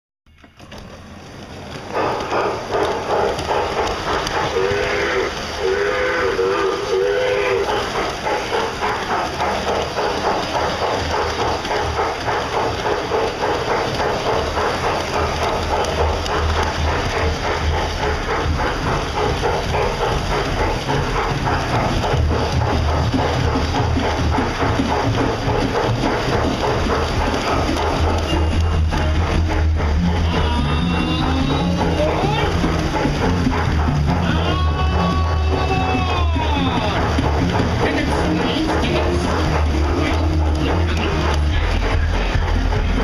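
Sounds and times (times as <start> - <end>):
steam locomotive chuffing and hissing: 0.4 - 43.0
locomotive whistle blasts: 4.5 - 7.7.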